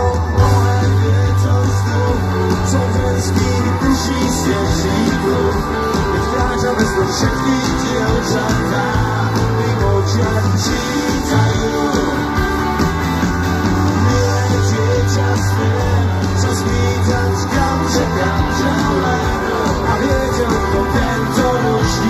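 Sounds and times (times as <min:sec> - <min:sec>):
person singing: 0:00.0 - 0:12.9, 0:14.0 - 0:22.0
bass guitar: 0:00.0 - 0:22.0
drums: 0:00.0 - 0:22.0
electric guitars: 0:00.0 - 0:22.0.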